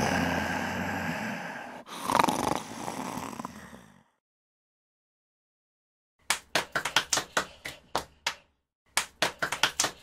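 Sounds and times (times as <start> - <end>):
hands clapping: 6.2 - 10.0.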